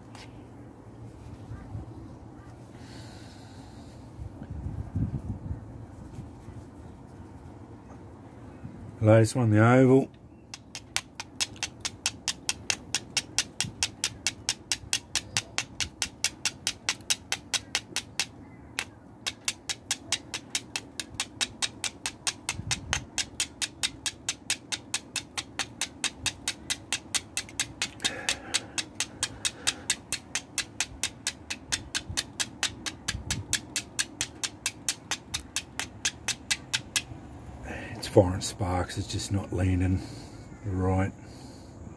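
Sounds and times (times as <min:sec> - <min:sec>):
fire striker scraping flint: 0:10.5 - 0:37.1.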